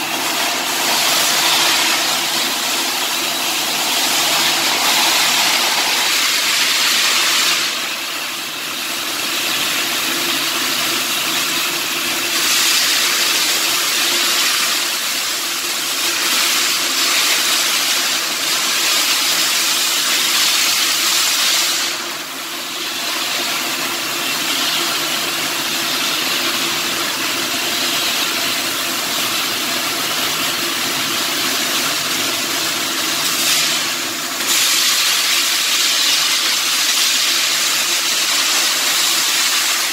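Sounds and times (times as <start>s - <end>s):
welding arc crackling and hissing: 0.0s - 39.9s.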